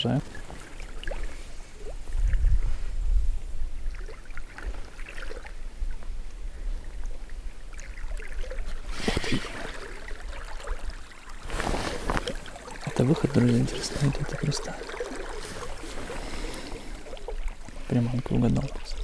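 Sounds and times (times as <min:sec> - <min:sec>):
river water lapping and trickling: 0:00.0 - 0:19.0
fish splashing at surface: 0:07.8 - 0:19.0.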